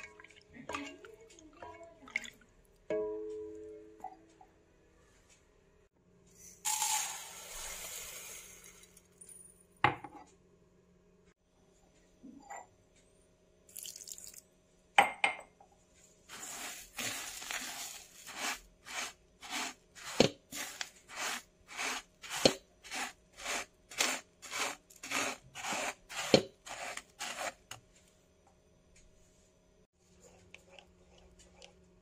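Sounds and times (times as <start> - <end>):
water pouring onto sugar: 13.7 - 14.4, 16.3 - 27.6
spatula stirring wet sugar: 16.3 - 27.8.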